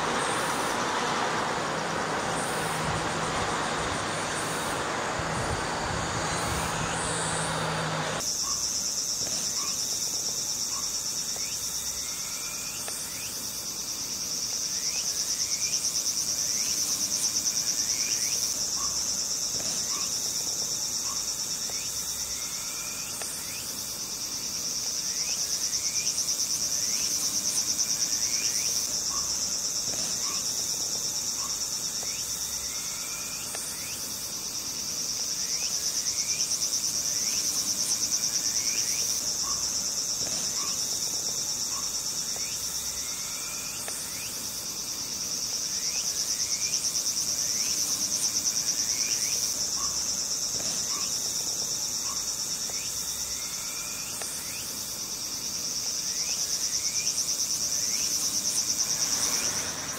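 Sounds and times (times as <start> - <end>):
faint rising chirps: 0.0 - 8.2
insect chorus trilling: 0.0 - 59.9.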